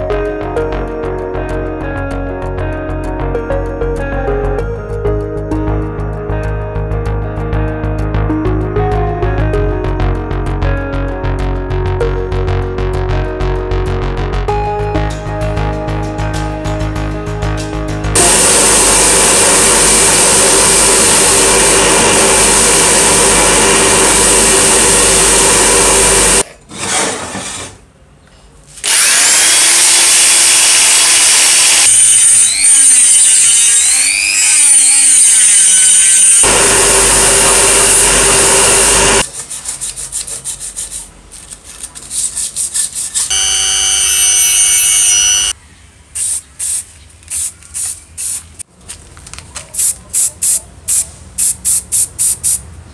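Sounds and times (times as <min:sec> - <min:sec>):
rotary tool grinding metal: 0:28.8 - 0:36.5.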